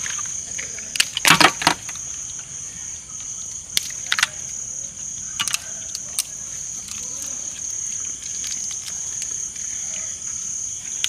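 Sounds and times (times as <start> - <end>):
crickets chirring: 0.0 - 11.0
crab shells cracking: 5.3 - 9.8.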